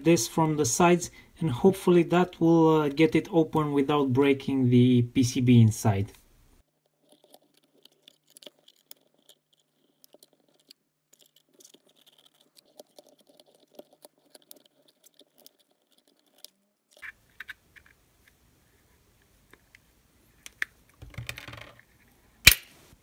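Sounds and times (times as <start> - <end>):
vise clicks and scratches on plastic: 6.7 - 18.0.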